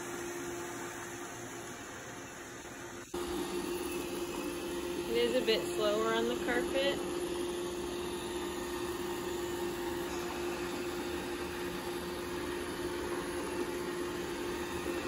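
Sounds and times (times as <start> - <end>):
robot vacuum whirring: 3.0 - 15.0.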